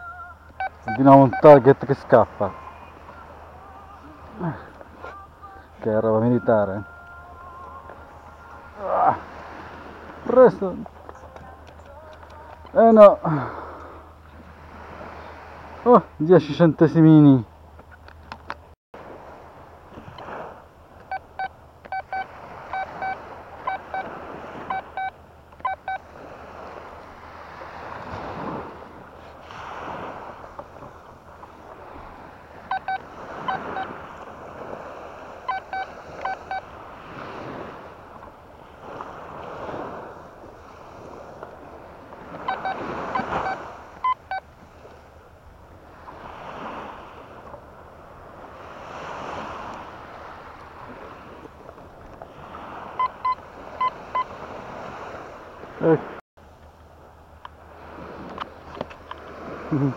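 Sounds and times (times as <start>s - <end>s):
surf washing in: 0.0s - 17.5s, 19.0s - 56.2s, 57.0s - 59.9s
metal detector beeping: 0.1s - 1.8s, 21.0s - 26.0s, 32.6s - 34.0s, 35.5s - 36.7s, 42.4s - 44.5s, 52.9s - 54.3s.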